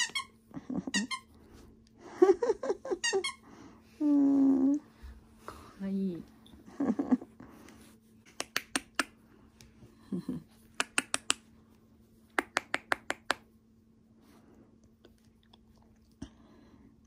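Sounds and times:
person making sharp clicks: 8.3 - 9.2, 10.7 - 11.5, 12.3 - 13.5.

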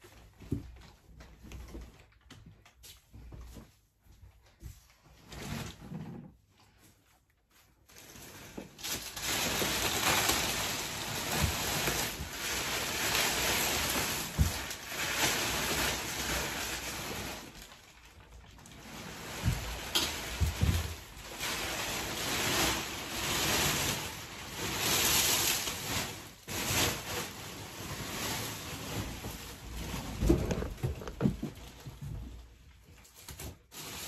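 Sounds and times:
plastic wrapping crackling: 7.8 - 34.0.

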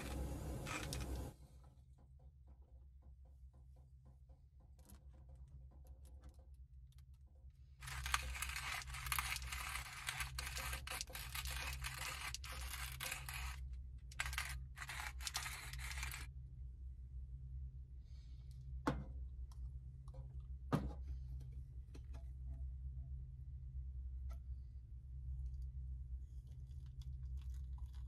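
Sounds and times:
coffee grinder crunching beans: 0.0 - 1.3, 7.8 - 16.3.

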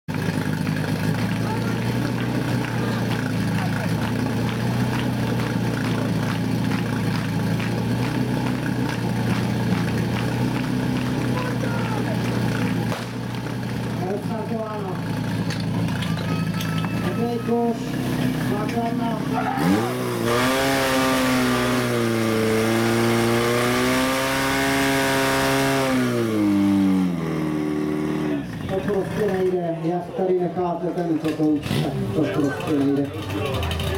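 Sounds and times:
pump engine running: 0.1 - 26.9.

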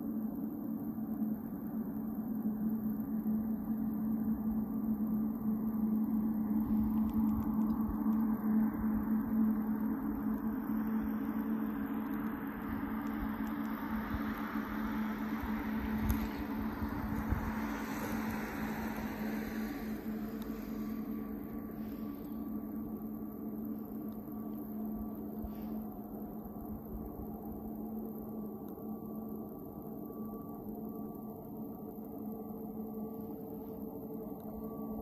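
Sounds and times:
distant jet engines idling: 1.4 - 35.0
broad rushing noise: 12.5 - 22.5.

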